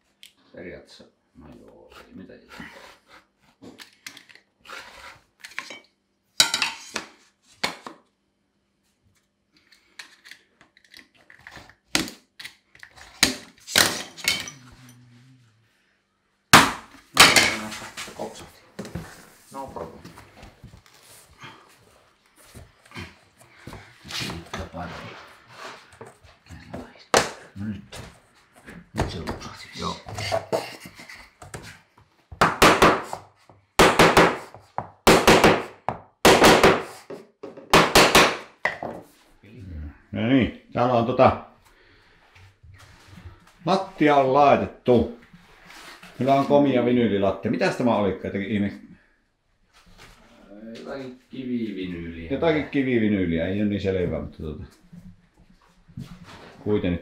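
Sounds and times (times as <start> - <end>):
hammer striking wooden block: 16.6 - 17.4, 32.4 - 33.2, 33.8 - 38.9.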